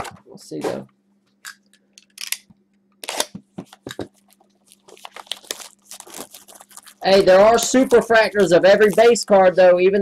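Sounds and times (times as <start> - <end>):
plastic wrap crinkling and ripping: 4.1 - 9.2.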